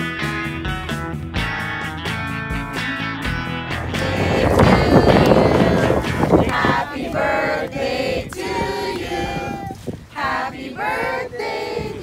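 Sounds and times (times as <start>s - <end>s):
children and adults singing: 3.9s - 12.0s.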